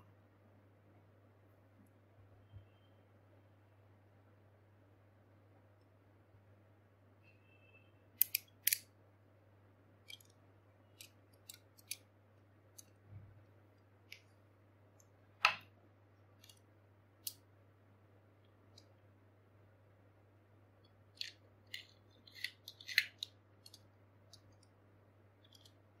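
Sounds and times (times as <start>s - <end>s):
low steady hum: 0.0s - 26.0s
plastic toy parts clicking: 8.2s - 8.9s, 10.0s - 12.1s, 16.4s - 17.4s, 20.8s - 24.7s, 25.4s - 25.8s.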